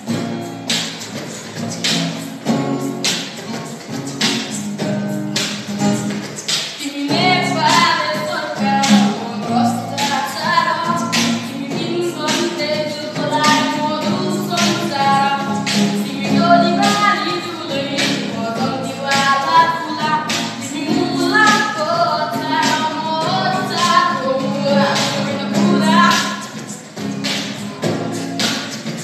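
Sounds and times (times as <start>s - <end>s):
vocal beatboxing: 0.0s - 29.0s
boy singing: 6.8s - 26.8s.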